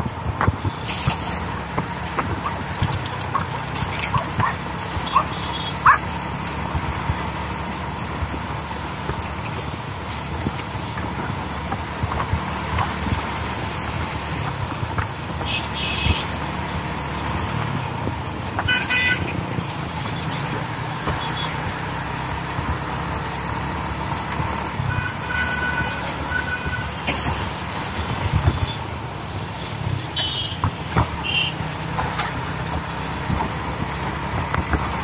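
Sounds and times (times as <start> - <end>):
motorbike engine rumble: 0.0 - 35.0
passing traffic: 0.0 - 35.0
vehicle horn toots: 15.5 - 16.3, 18.7 - 19.3, 24.9 - 26.9.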